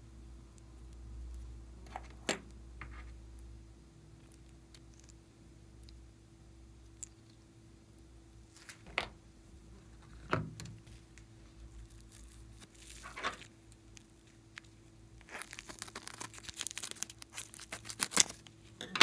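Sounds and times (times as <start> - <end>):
scissors cutting plastic bag: 15.2 - 19.0.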